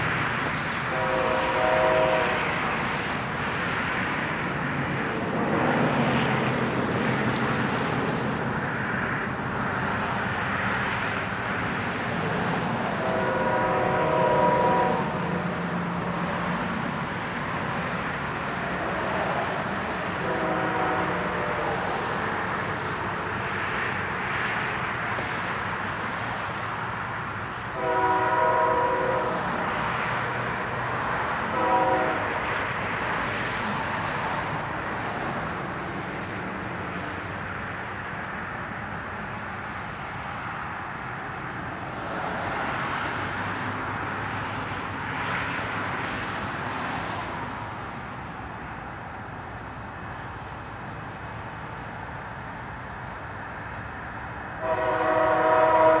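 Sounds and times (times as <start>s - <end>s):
diesel locomotive rumbling: 0.0s - 56.0s
multi-tone air horn blasts: 0.9s - 2.6s, 13.0s - 15.1s, 20.2s - 21.8s, 27.8s - 29.4s, 31.5s - 32.4s, 54.6s - 56.0s.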